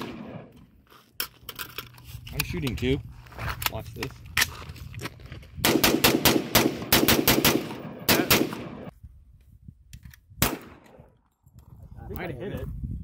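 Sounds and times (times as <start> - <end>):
handguns firing: 5.6 - 8.9, 10.4 - 11.0.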